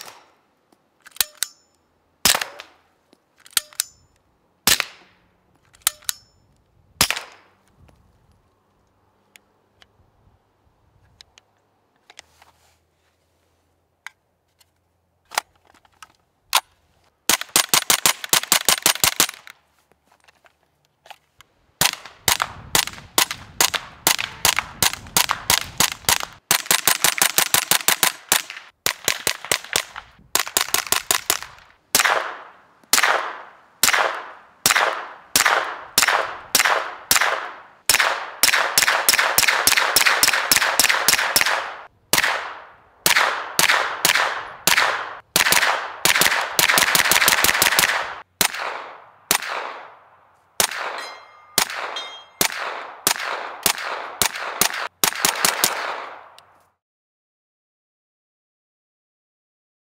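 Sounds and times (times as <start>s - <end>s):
suppressed gunfire: 21.8s - 50.0s, 50.6s - 56.4s.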